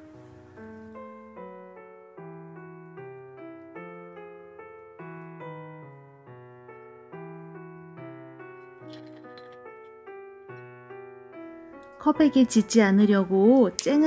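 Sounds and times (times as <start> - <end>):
solo piano music: 0.0 - 14.0.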